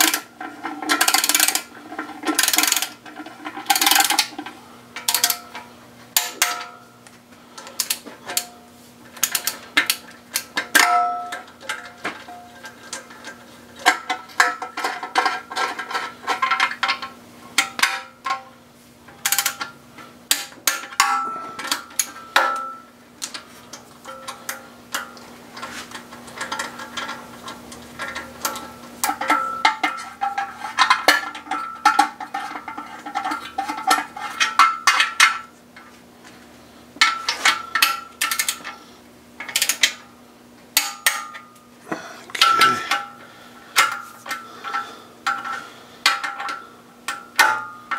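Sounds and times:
hand ratchet clicking: 0.0 - 3.0, 3.6 - 4.3, 5.0 - 5.4, 7.6 - 8.5, 9.2 - 10.8, 19.2 - 19.7
metal tools clinking: 42.3 - 43.2.

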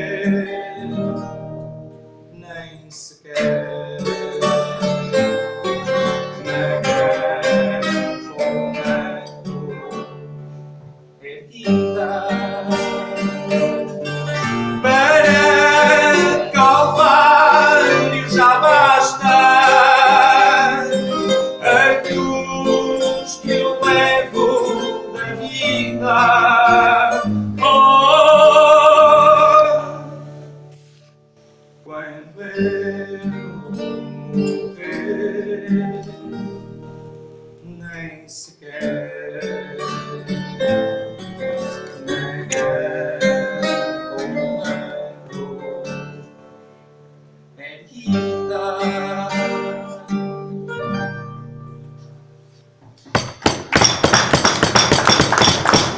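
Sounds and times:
man singing: 0.0 - 1.4, 2.3 - 10.2, 11.2 - 30.4, 31.8 - 36.4, 37.6 - 46.2, 47.6 - 50.3
plucked guitars: 0.0 - 31.3, 32.2 - 38.1, 38.7 - 47.3, 47.9 - 55.9.

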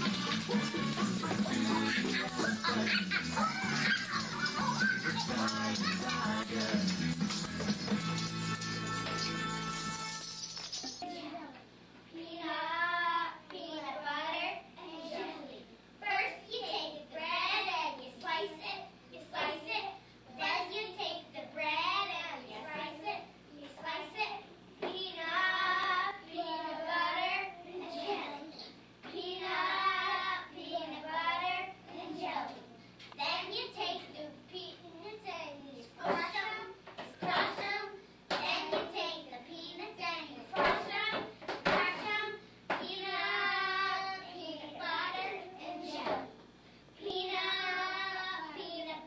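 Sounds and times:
children singing: 0.0 - 7.0, 42.9 - 46.2.

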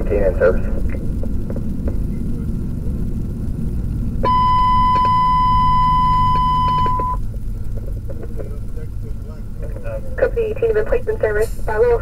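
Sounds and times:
engine and road rumble: 0.0 - 12.0
high electronic beep tone: 4.2 - 7.2.

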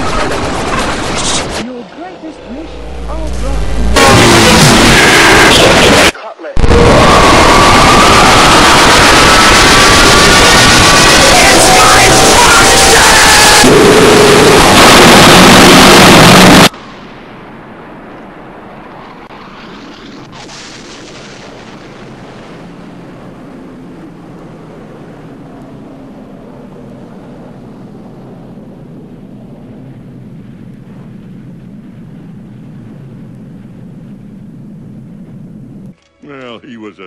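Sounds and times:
harsh distorted noise: 2.4 - 16.8
explosion roar rumbling: 2.4 - 17.8.

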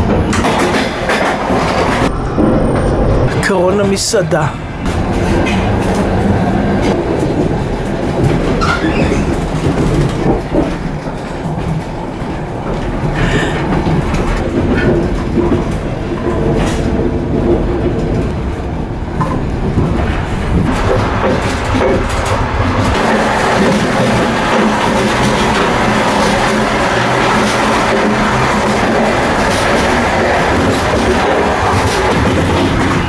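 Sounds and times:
sharp knocks and clatter: 0.0 - 2.9, 6.8 - 18.5, 19.2 - 33.0
train wheels rumbling on rails: 0.0 - 33.0.

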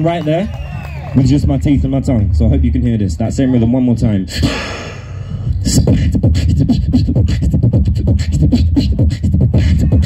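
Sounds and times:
deep bass line: 0.6 - 10.0
beatboxing into microphone: 4.1 - 10.0.

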